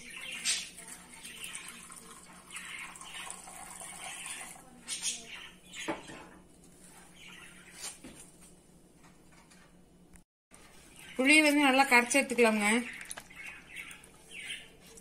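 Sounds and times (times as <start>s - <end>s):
liquid pouring and splashing: 0.7s - 4.6s.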